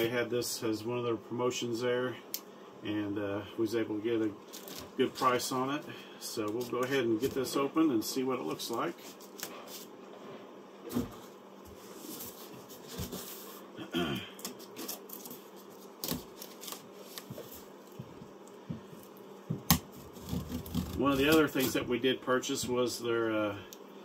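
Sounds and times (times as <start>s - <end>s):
cardboard being handled: 10.9s - 13.6s, 19.6s - 21.9s
knife cutting packing tape: 19.7s - 21.8s.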